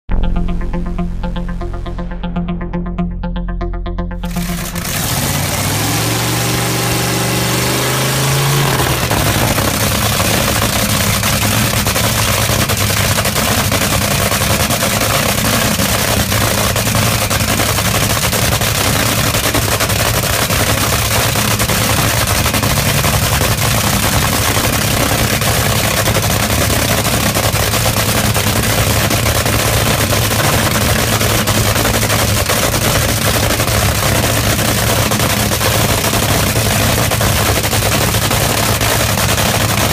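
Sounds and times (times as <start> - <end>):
dragster engine crackling roar: 4.2 - 39.9.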